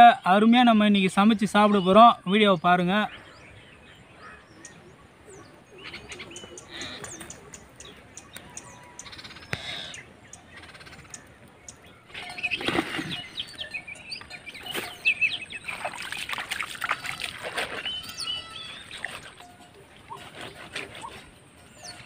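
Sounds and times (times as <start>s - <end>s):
small birds chirping: 0.0s - 22.0s
water splashing and rustling: 11.0s - 22.0s.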